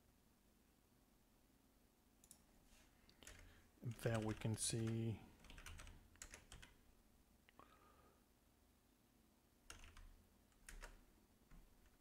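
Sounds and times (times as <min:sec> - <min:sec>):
faint keyboard keystrokes: 0:03.1 - 0:06.8.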